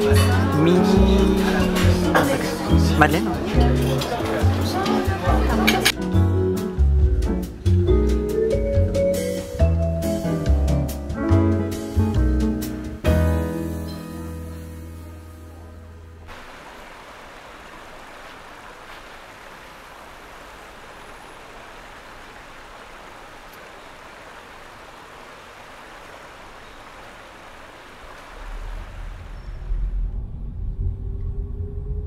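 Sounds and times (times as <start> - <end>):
flowing canal water: 0.0 - 6.0, 15.7 - 30.0
background music: 0.0 - 16.3
low rumble: 28.3 - 32.0.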